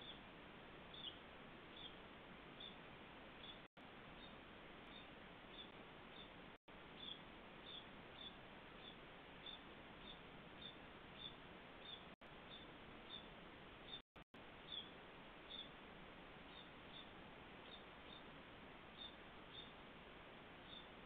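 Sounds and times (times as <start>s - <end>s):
young birds chirping: 0.0s - 0.3s, 0.9s - 2.8s, 3.4s - 6.4s, 7.0s - 14.0s, 14.6s - 15.8s, 16.4s - 18.3s, 18.9s - 19.8s, 20.6s - 21.0s.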